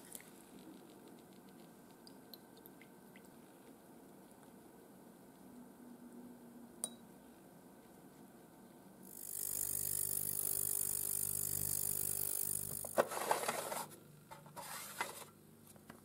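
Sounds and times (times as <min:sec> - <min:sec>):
ultrasonic cleaner humming: 0:09.1 - 0:15.2.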